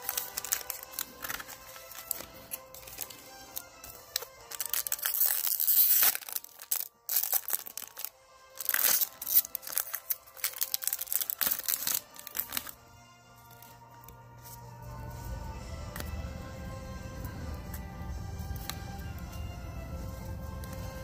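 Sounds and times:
blade slitting foil: 0.0 - 12.7
foil wrapper crinkling: 0.0 - 12.8.

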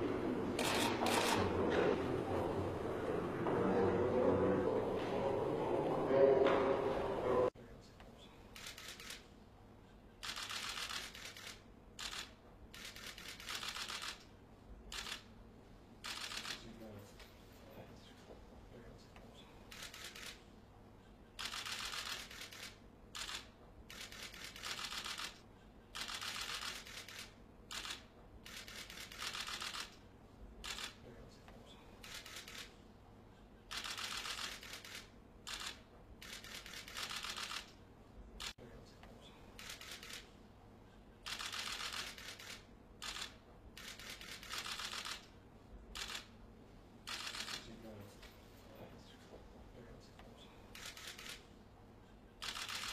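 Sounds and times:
camera shutters clicking: 0.6 - 1.7, 8.6 - 9.2, 10.2 - 14.3, 16.0 - 16.6, 21.4 - 25.4, 26.0 - 30.0, 33.7 - 37.8, 39.6 - 40.3, 41.2 - 45.3, 46.0 - 46.3, 47.1 - 47.7, 50.7 - 51.4, 52.4 - 52.9.

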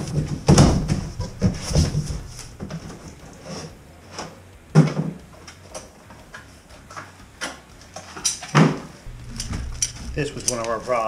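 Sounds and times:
parts knocking in cardboard box: 0.0 - 2.9
loud thuds: 0.0 - 3.0.

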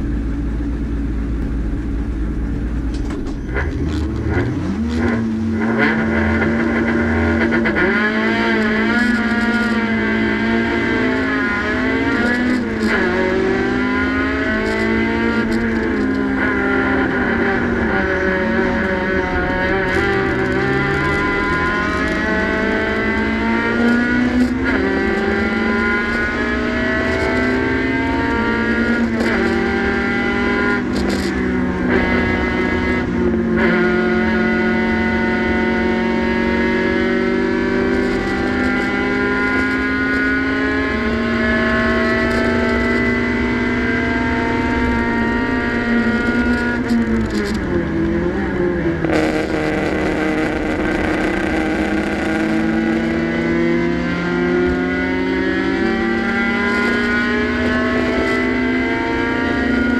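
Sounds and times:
race car engine accelerating: 2.0 - 59.9.

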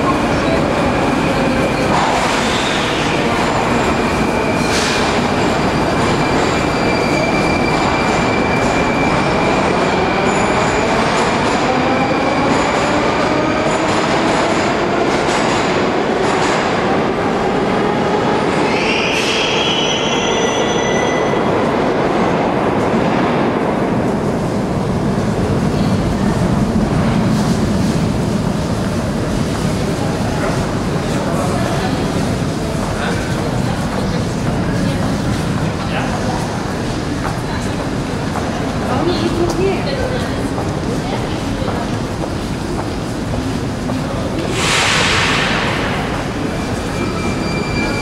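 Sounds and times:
train rumble: 21.4 - 48.0
wheel squeal: 46.7 - 48.0.

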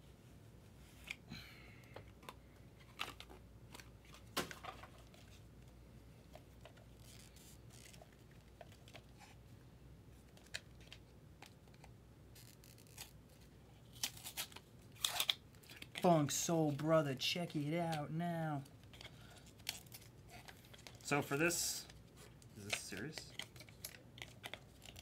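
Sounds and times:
packaging rustle: 18.6 - 25.0.

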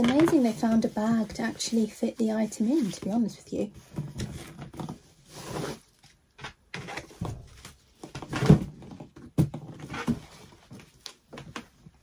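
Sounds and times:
cardboard box rubbing and scraping: 4.2 - 5.9.

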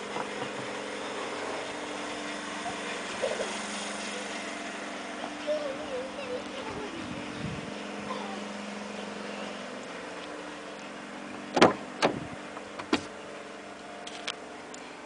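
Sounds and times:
car door clunk: 11.5 - 13.1.

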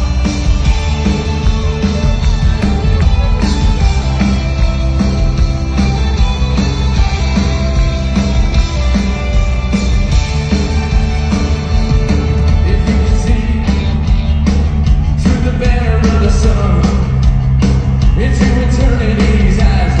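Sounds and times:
live rock band playing: 0.0 - 20.0
person singing: 12.0 - 14.2, 15.2 - 17.2, 18.2 - 20.0.

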